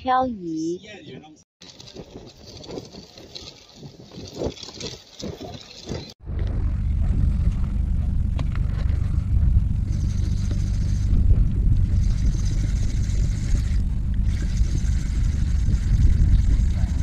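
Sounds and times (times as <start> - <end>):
steady low rumble: 6.2 - 17.0
fishing reel whirring: 9.9 - 11.2, 11.9 - 17.0.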